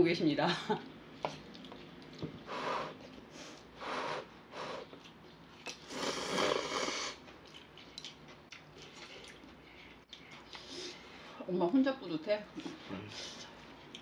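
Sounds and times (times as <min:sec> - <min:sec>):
noodles slurped: 0:05.7 - 0:07.2.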